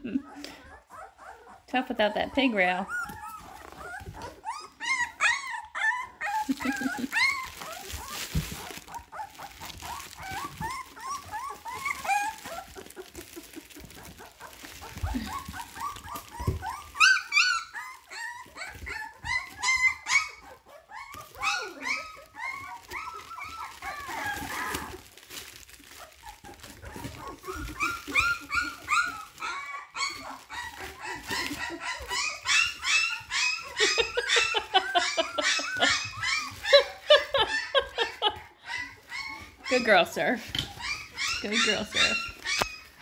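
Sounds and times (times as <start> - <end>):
puppies whining and yelping: 0.0 - 43.0.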